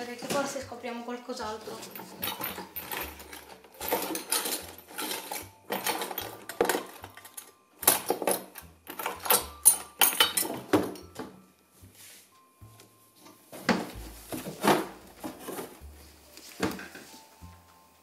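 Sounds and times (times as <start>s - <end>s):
small objects clinking in drawer: 1.6s - 11.2s.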